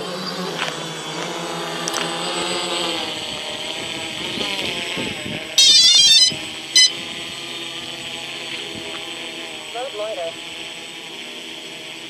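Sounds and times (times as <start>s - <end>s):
rapid electronic beeps: 5.6s - 6.9s
short beep: 5.6s - 6.9s
drone motors whining: 5.6s - 12.0s.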